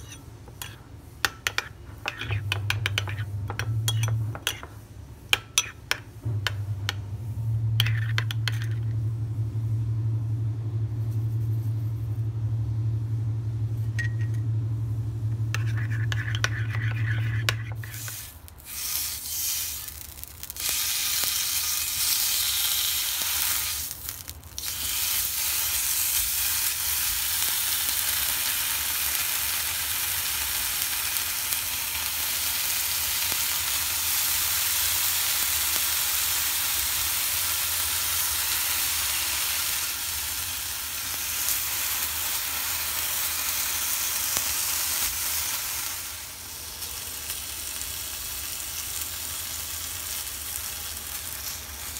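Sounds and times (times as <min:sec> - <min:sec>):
bacon sizzling on a griddle: 0:17.7 - 0:51.9.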